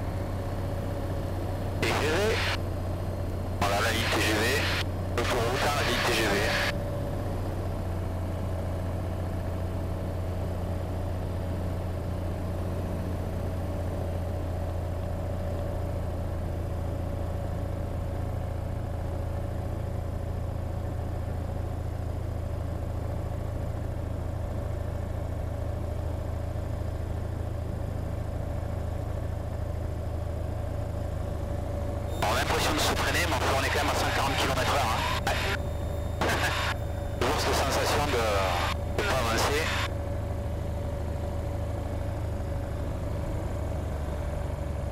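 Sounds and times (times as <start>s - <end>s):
aircraft engine and propeller droning: 0.0s - 44.9s
high-pitched whine: 1.8s - 2.6s, 3.6s - 6.8s, 32.0s - 40.0s.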